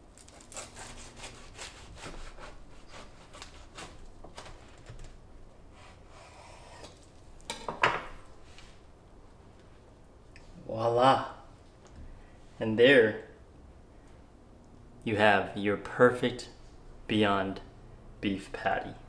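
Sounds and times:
knife sawing through toasted bread: 0.2s - 4.0s, 5.7s - 6.9s.

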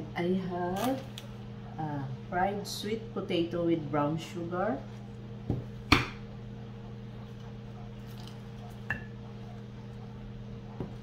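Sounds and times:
steady low hum: 0.0s - 11.0s
quiet food handling: 7.0s - 11.0s.

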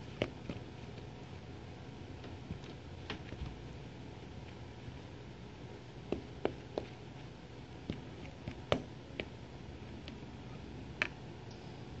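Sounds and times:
spoon stirring flour in bowl: 0.0s - 1.3s, 6.0s - 11.1s.

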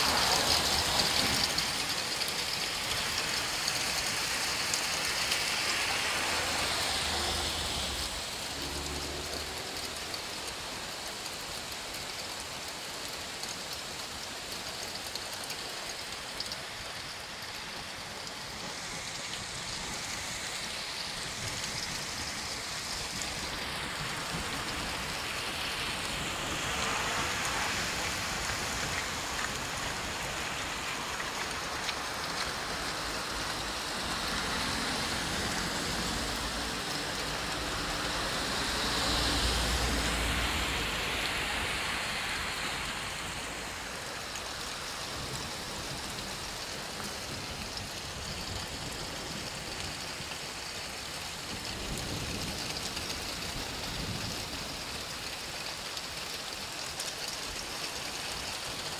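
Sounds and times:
rain and hail rushing: 0.0s - 58.9s.

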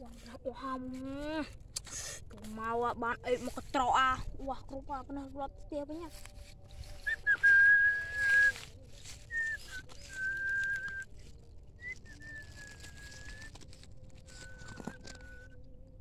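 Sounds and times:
person whistling long notes: 7.0s - 15.6s.

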